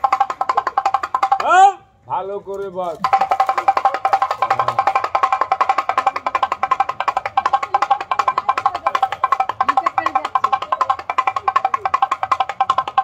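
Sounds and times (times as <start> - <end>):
rapid hand drum strikes: 3.0 - 13.0.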